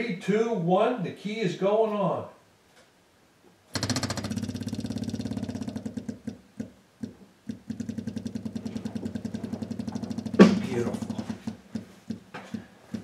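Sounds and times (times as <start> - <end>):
electric fuel pump ticking: 3.7 - 13.0.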